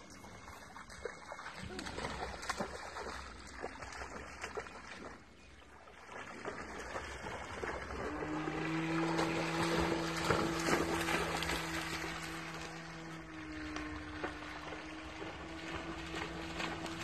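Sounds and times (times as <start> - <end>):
water splashing: 0.0 - 17.0
steady low droning: 6.6 - 17.0.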